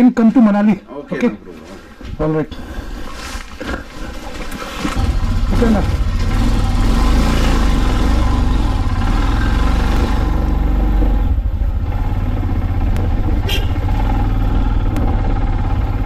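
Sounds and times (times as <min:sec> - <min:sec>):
motorcycle engine running: 0:04.1 - 0:16.0.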